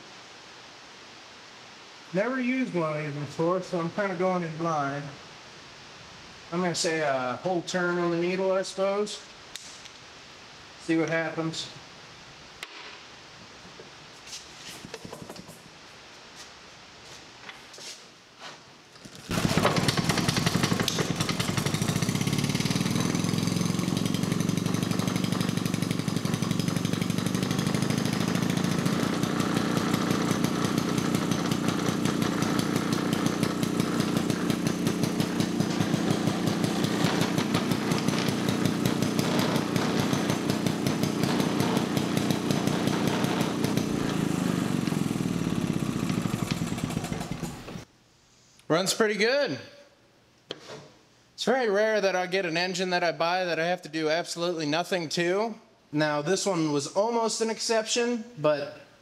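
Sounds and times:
engine running fast: 0:19.3 - 0:47.8.

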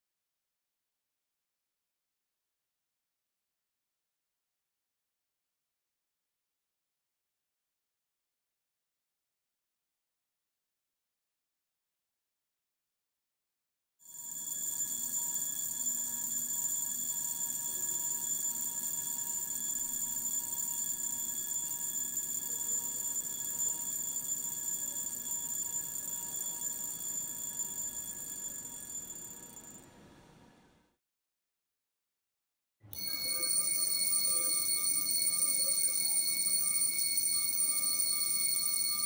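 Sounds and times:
alarm watch metallic buzz: 0:14.1 - 0:29.9, 0:32.9 - 0:39.0.

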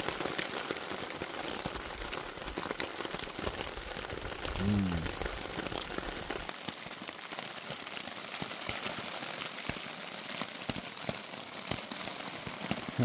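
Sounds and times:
raindrops tapping close by: 0:00.0 - 0:13.0
steady rain falling: 0:00.0 - 0:13.0.

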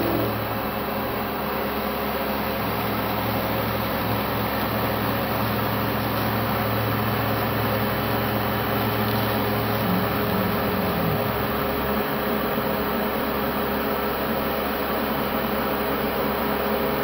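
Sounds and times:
cnc router carving foam: 0:00.0 - 0:00.7, 0:09.0 - 0:13.5.

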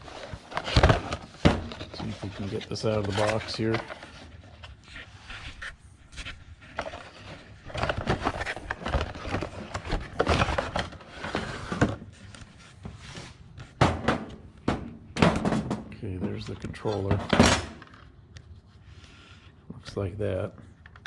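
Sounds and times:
cardboard rustling and scraping: 0:00.0 - 0:13.8.

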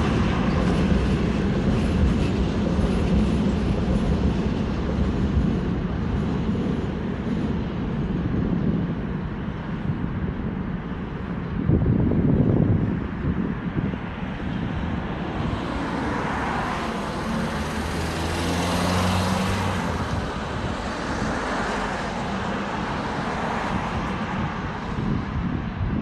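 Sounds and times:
traffic noise: 0:00.0 - 0:26.0
car passing close by: 0:15.3 - 0:24.0.

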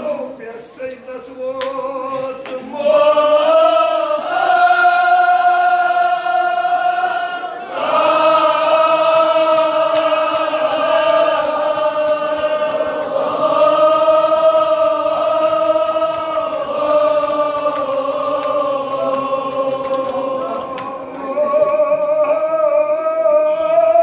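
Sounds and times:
men chanting together: 0:01.8 - 0:24.0.

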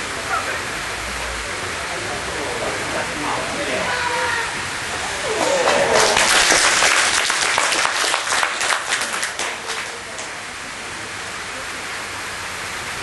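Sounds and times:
steady hiss: 0:00.0 - 0:13.0
crowd applause: 0:01.4 - 0:11.6.

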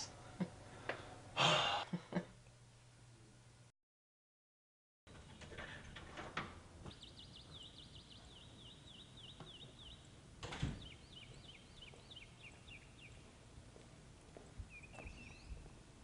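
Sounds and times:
outdoor background noise: 0:00.0 - 0:03.7, 0:05.1 - 0:16.0.

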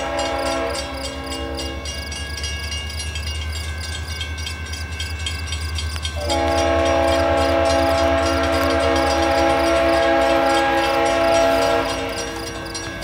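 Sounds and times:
locomotive air horn: 0:00.0 - 0:01.9, 0:06.1 - 0:13.0.

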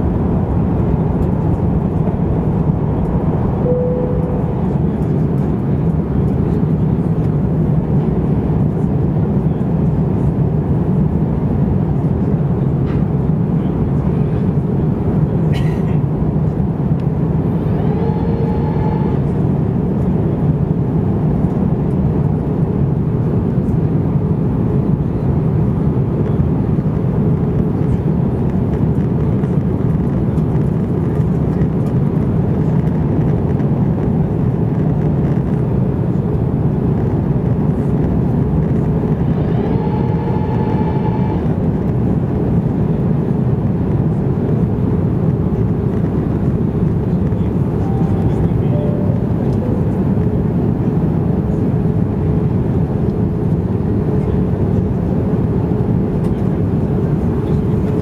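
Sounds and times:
airplane cabin rumble: 0:00.0 - 0:58.0
short whine: 0:02.9 - 0:05.8, 0:17.4 - 0:19.7, 0:38.4 - 0:42.0, 0:47.1 - 0:51.3.

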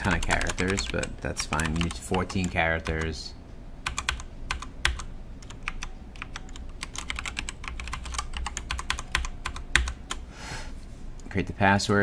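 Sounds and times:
typing on computer keyboard: 0:00.0 - 0:03.2, 0:03.8 - 0:10.2.

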